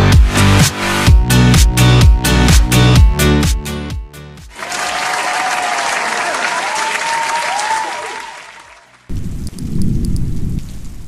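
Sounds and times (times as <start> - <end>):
crowd applauding and cheering: 4.5 - 9.1.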